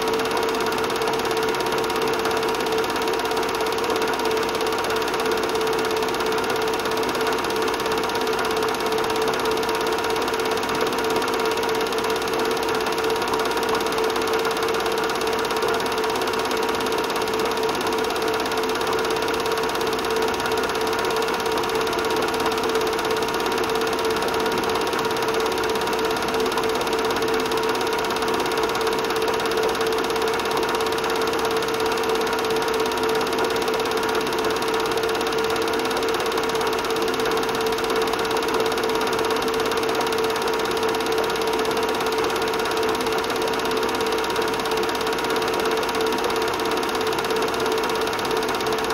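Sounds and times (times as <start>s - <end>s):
film projector whirring and clattering: 0.0s - 48.9s.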